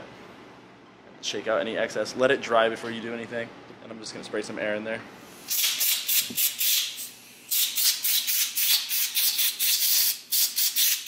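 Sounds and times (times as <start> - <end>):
air blow gun hissing blasts: 5.2 - 11.0.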